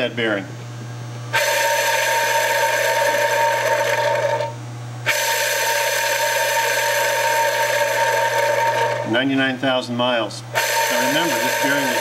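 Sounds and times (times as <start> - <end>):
bearing spinning and whirring: 1.3 - 9.5, 10.6 - 12.0.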